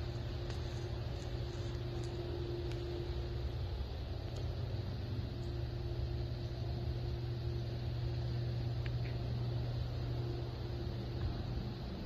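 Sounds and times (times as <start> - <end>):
faint high steady tone: 0.0 - 12.0
low mechanical hum: 0.0 - 12.0.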